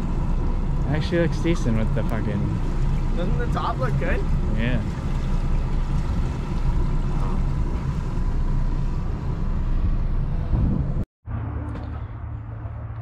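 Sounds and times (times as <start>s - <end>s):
wind buffeting microphone: 4.2s - 11.1s.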